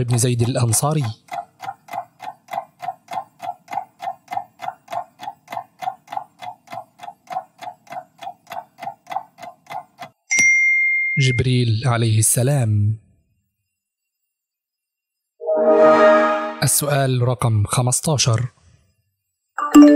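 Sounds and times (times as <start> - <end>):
clock ticks: 0.0 - 10.3.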